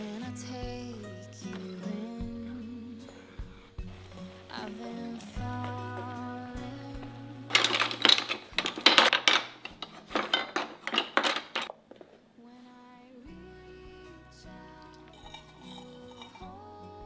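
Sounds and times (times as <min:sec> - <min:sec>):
wooden utensils clattering on table: 0:07.5 - 0:12.2, 0:15.1 - 0:16.5.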